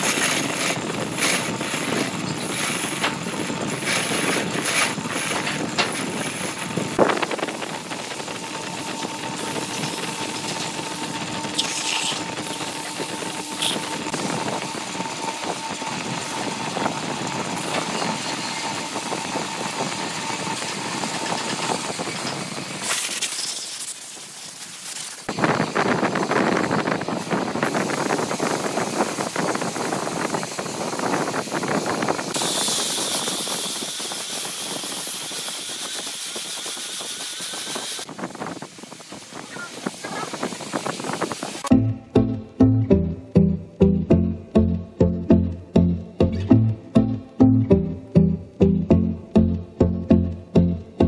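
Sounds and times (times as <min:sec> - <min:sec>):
sandpaper on turning wood: 0:00.0 - 0:03.1, 0:03.7 - 0:06.8, 0:21.7 - 0:25.3, 0:32.4 - 0:38.1
hand tool scraping spinning wood: 0:00.0 - 0:18.8
wood lathe running: 0:00.0 - 0:22.8, 0:28.8 - 0:38.1.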